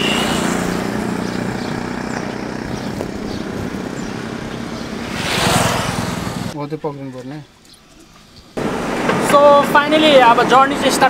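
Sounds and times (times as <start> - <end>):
motorcycles riding past: 0.0 - 6.6.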